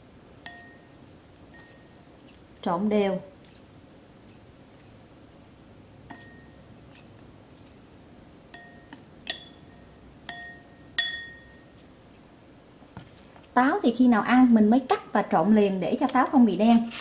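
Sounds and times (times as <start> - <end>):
chopsticks clinking against ceramic bowl: 10.3 - 11.6.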